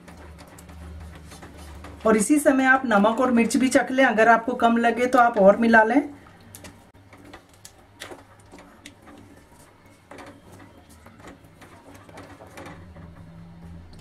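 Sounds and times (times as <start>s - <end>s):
spatula scraping metal pan: 0.0s - 3.9s, 7.1s - 13.8s.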